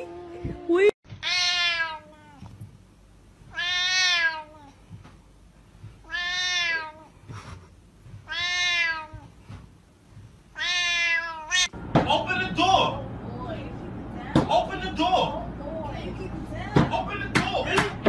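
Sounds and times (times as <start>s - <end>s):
cat meowing loudly: 1.1s - 2.6s, 3.5s - 4.8s, 6.0s - 7.2s, 8.2s - 9.4s, 10.5s - 11.7s.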